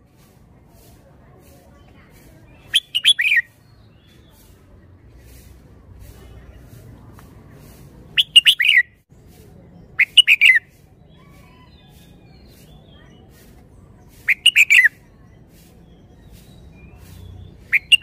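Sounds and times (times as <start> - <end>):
bird singing: 2.5 - 4.5, 8.2 - 9.0, 14.2 - 18.0.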